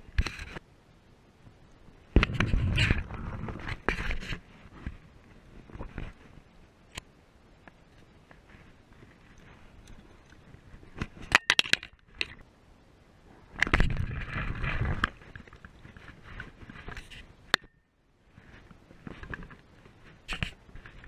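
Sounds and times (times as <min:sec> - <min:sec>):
handling noise of tackle and clothing: 0:13.6 - 0:17.3.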